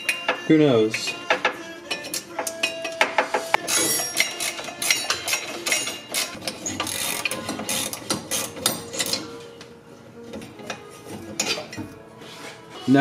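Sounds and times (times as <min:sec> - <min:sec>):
ratchet wrench clicking: 0:03.7 - 0:09.2.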